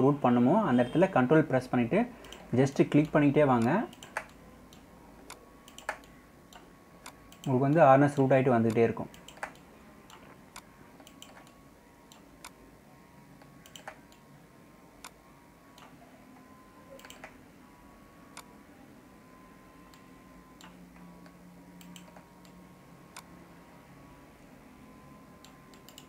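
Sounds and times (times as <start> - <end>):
low steady hum: 0.0 - 26.0
computer mouse clicks: 2.2 - 12.6, 13.4 - 14.3, 15.0 - 16.0, 17.0 - 17.4, 20.6 - 23.3, 25.4 - 26.0.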